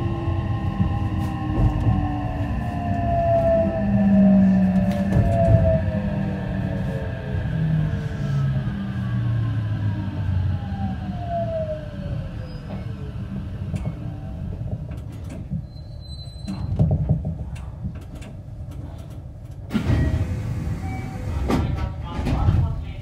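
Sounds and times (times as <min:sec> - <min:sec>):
train inverter whine: 0:00.0 - 0:14.8
low train rumble: 0:00.0 - 0:23.0.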